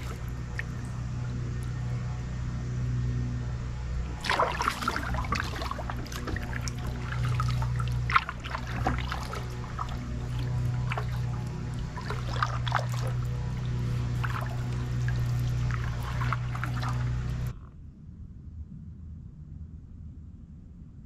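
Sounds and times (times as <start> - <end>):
kayak paddle splashing water: 0.0 - 1.8, 4.0 - 17.6
distant lawnmower engine hum: 0.0 - 17.6.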